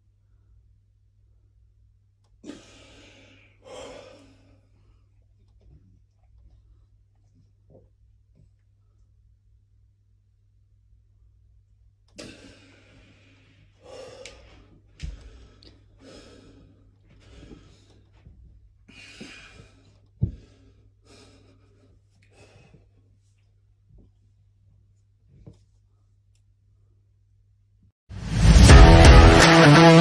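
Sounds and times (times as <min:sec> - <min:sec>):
man breathing heavily: 0:02.4 - 0:05.3, 0:12.2 - 0:23.2.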